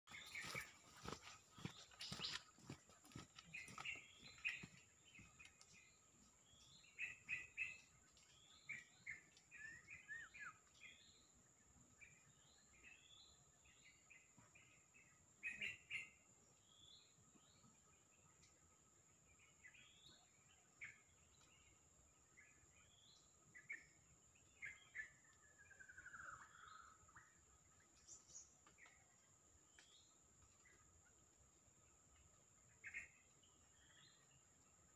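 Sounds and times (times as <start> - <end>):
bird chirping and singing: 0.1 - 11.3.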